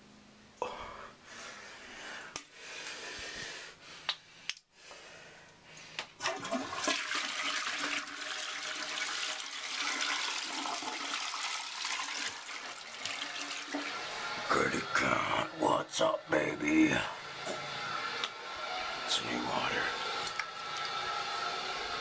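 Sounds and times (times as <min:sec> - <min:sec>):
toilet flushing water: 0:06.2 - 0:15.5, 0:19.0 - 0:22.0.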